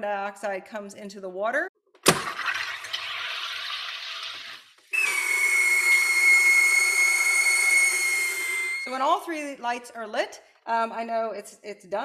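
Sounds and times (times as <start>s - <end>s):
gas hissing into bottle: 4.9s - 8.9s
relief valve buzzing whistle: 4.9s - 9.2s.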